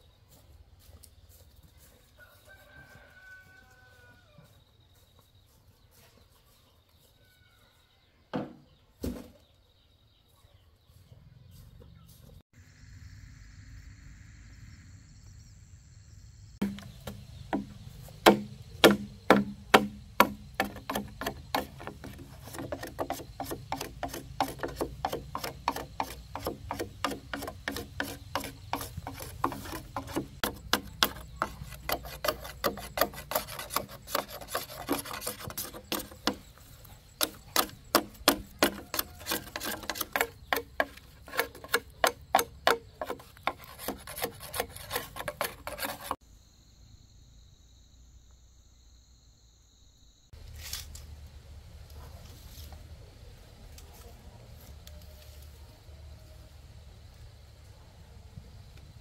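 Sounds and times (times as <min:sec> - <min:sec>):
rooster crowing: 0:02.2 - 0:04.6, 0:07.2 - 0:08.0, 0:38.5 - 0:39.9
sharp knocks: 0:16.6 - 0:36.5, 0:37.2 - 0:45.8
hand tool scraping wood: 0:16.6 - 0:46.2.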